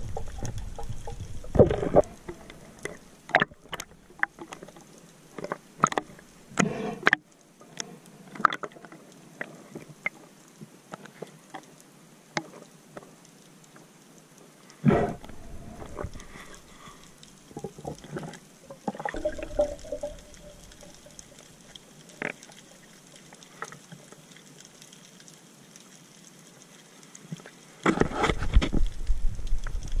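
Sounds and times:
underwater knocks and clicks: 0.0s - 9.0s, 15.2s - 24.0s, 27.4s - 30.0s
churning rush of water: 18.8s - 21.6s.

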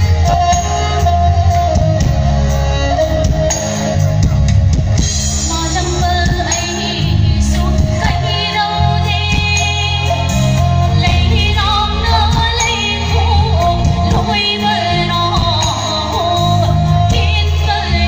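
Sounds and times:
live band playing: 0.0s - 18.0s
woman singing: 5.4s - 18.0s.

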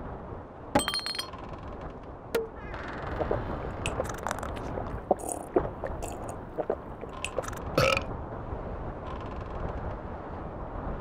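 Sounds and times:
hamster chewing food: 3.1s - 7.6s
hamster burp: 3.2s - 8.1s.

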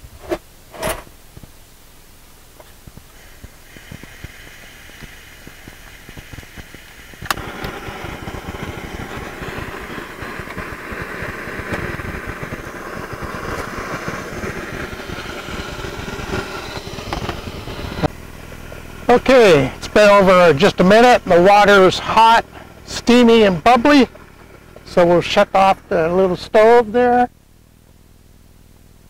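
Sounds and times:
faint gas hiss: 0.0s - 29.0s
gas burner roaring: 0.0s - 29.0s
sharp ignition click: 3.2s - 18.1s.

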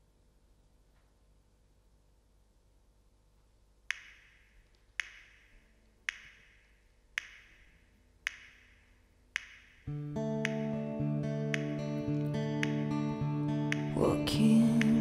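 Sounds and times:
sharp percussive clicks: 3.9s - 13.0s, 13.6s - 14.0s.

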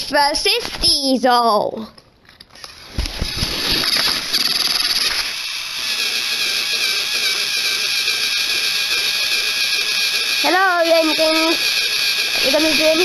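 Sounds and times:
toy train motors whirring: 2.6s - 13.0s
high whine: 3.2s - 13.0s.

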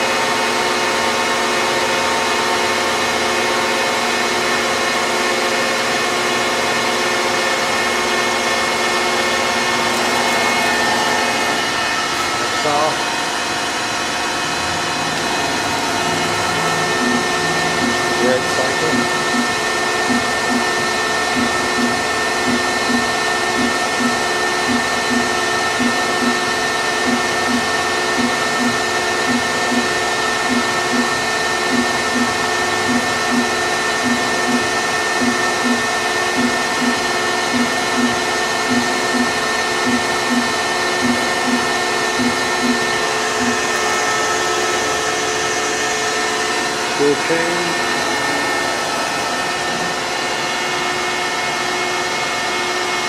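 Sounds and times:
lathe mechanical hum and whine: 0.0s - 53.0s
low repeating pulse: 15.8s - 43.7s.

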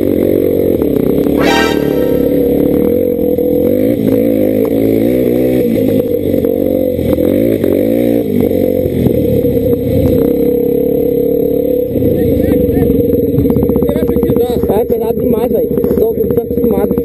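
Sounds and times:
dirt bike engine revving: 1.4s - 2.9s.

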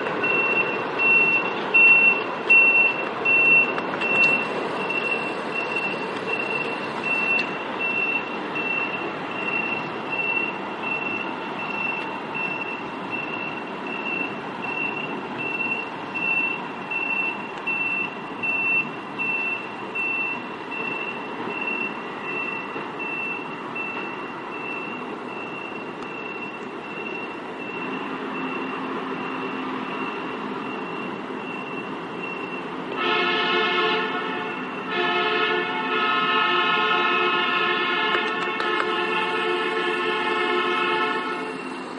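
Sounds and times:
diesel engine running: 0.0s - 41.9s
backup alarm beeping: 0.2s - 33.1s.

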